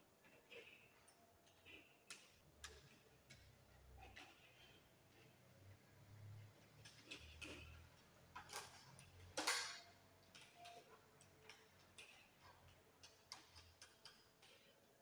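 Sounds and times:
clicks and taps of wires: 6.8s - 14.8s.

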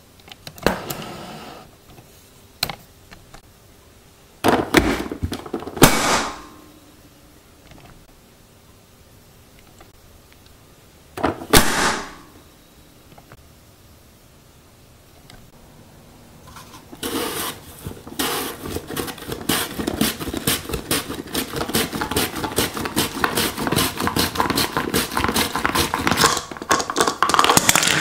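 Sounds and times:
slicer scraping over tomato: 16.5s - 26.2s.

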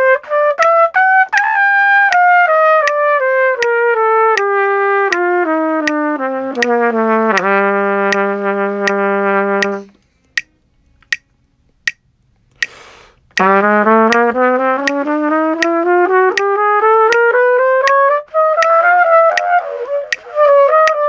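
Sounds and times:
trumpet playing slurred notes: 0.0s - 10.0s, 13.2s - 21.0s
faint steady clicks: 9.6s - 13.5s
short breathy hiss: 12.6s - 13.3s.

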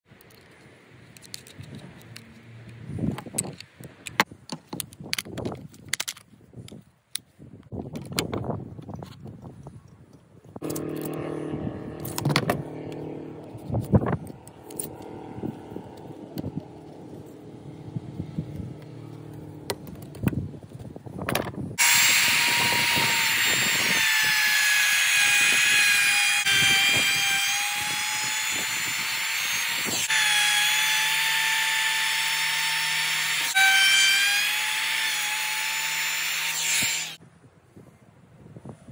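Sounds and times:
router cutting board: 10.6s - 20.3s, 21.8s - 37.2s
low machine hum: 10.6s - 20.8s.

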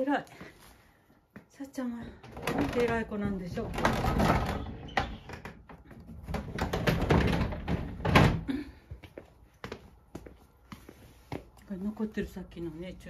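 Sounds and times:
door being shut: 6.4s - 8.5s.

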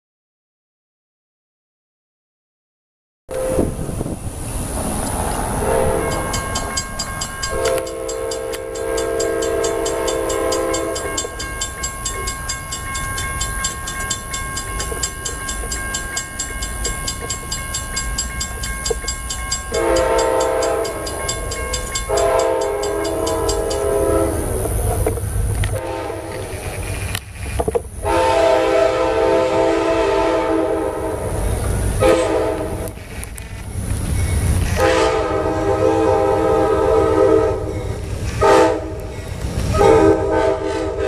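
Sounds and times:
locomotive horn blasts: 3.3s - 3.8s, 5.6s - 6.6s, 7.4s - 11.4s, 19.7s - 24.6s, 25.7s - 26.7s, 28.0s - 31.4s, 32.0s - 33.0s, 34.8s - 39.0s, 39.7s - 41.0s
train rumble: 3.3s - 41.0s
crossing warning bell ringing: 5.2s - 25.1s, 30.6s - 41.0s.

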